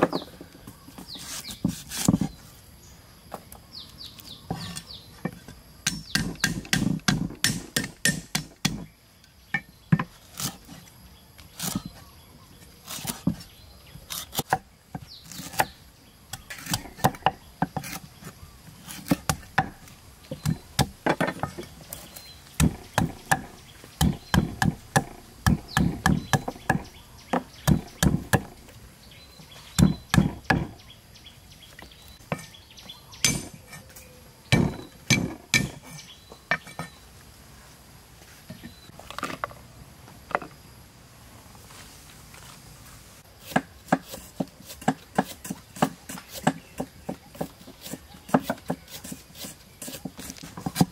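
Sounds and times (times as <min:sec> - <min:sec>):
cleaver chopping on wooden block: 0:05.8 - 0:08.9, 0:15.3 - 0:18.0, 0:18.9 - 0:21.6, 0:22.6 - 0:28.6, 0:29.8 - 0:30.8, 0:34.5 - 0:35.8, 0:43.5 - 0:49.1.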